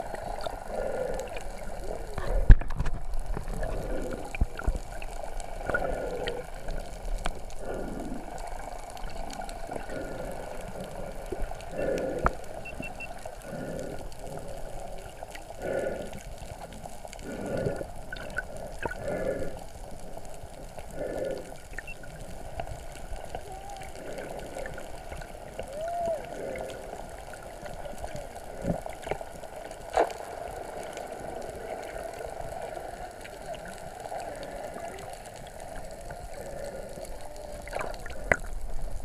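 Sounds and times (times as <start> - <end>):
muffled underwater water sloshing: 0.0 - 39.0.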